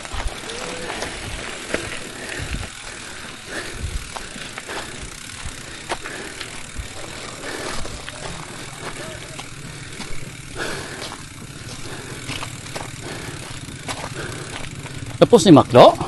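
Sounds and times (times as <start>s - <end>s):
bike clicking and rattling: 0.0s - 16.0s
bike tyres on gravel: 0.0s - 16.0s.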